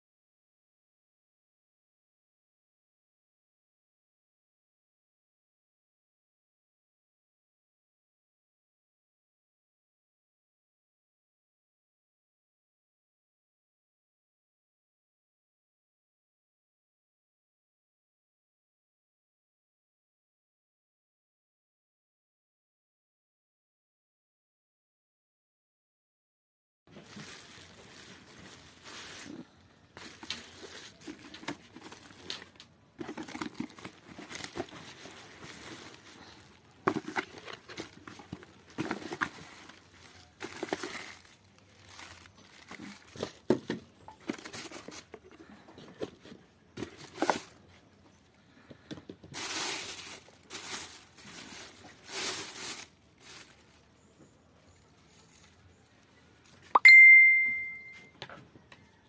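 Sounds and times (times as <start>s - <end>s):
bubble wrap and cardboard crinkling: 26.9s - 56.7s
short high tone: 56.8s - 58.1s.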